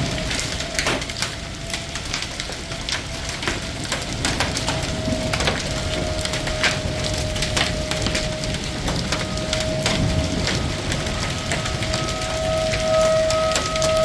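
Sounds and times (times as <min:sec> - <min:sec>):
hail ticking on metal hood: 0:00.0 - 0:14.0
hiss of falling rain: 0:00.0 - 0:14.0.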